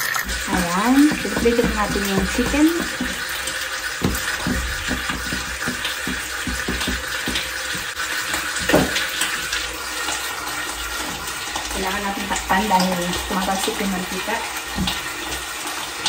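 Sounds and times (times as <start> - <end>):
oil crackling and popping: 0.0 - 11.7
chicken sizzling in hot oil: 0.0 - 16.0
knock: 0.3 - 3.4, 4.0 - 7.9, 8.6 - 9.0.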